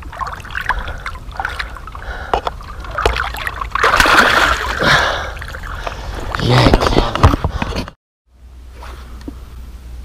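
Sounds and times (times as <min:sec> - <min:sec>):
fish splashing loudly: 0:00.0 - 0:05.7
water sloshing and small splashes: 0:00.0 - 0:07.5.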